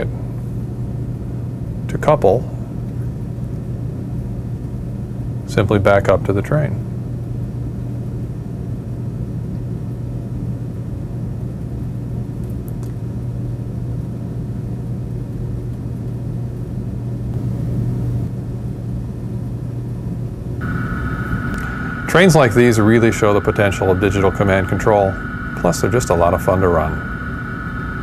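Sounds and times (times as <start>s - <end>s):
model train motor and wheel hum: 20.6s - 28.0s.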